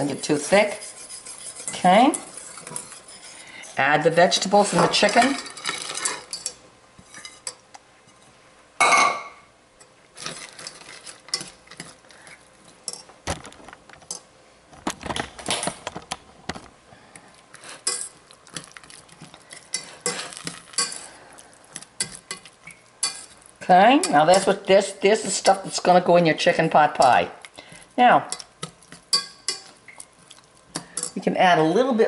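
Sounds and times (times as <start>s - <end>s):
whisk scraping metal pan: 0.0s - 3.8s, 17.6s - 18.2s, 19.4s - 21.2s, 21.8s - 25.8s.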